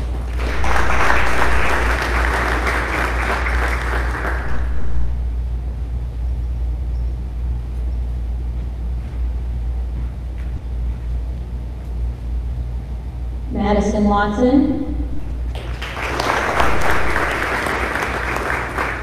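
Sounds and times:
audience clapping: 0.0 - 5.2, 15.5 - 19.0
steady low hum: 0.0 - 19.0.

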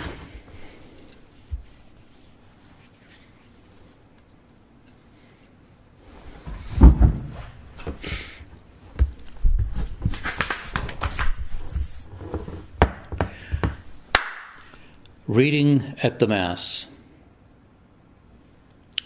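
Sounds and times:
rustling: 0.0 - 4.4.

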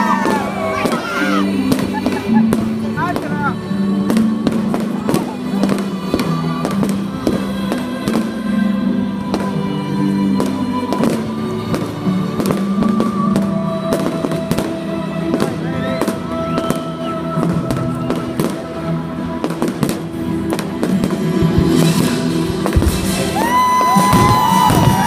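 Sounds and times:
fireworks bangs and crackles: 0.0 - 25.0
loud music: 0.0 - 25.0
fireworks whistling: 10.4 - 18.6, 20.8 - 25.0.

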